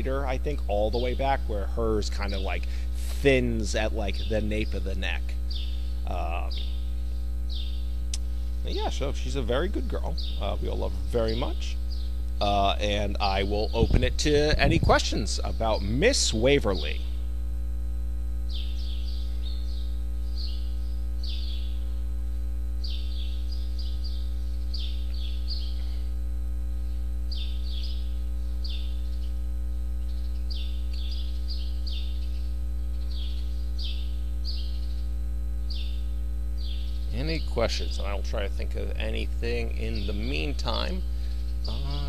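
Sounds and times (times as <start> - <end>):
electrical mains hum: 0.0 - 42.0
small bird chirping: 3.8 - 14.8, 18.5 - 22.0, 22.8 - 26.0, 26.8 - 38.2, 39.2 - 42.0.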